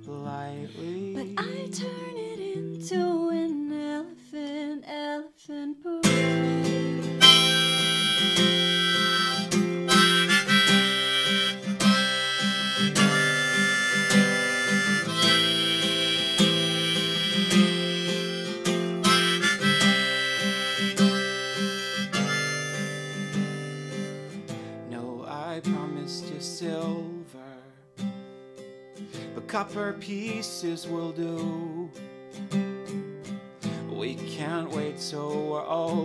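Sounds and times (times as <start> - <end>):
acoustic guitar: 0.0 - 36.0
harmonica solo: 6.1 - 24.7.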